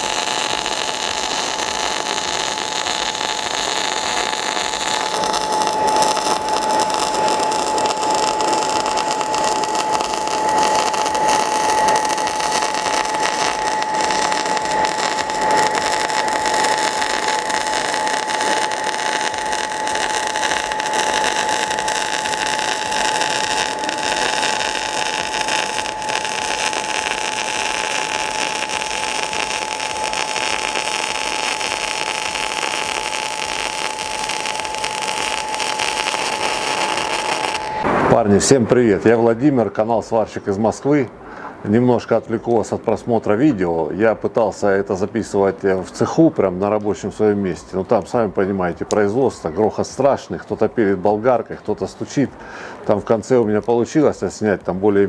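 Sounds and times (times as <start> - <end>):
welding arc hissing: 0.0 - 38.3
high whine: 0.0 - 43.4.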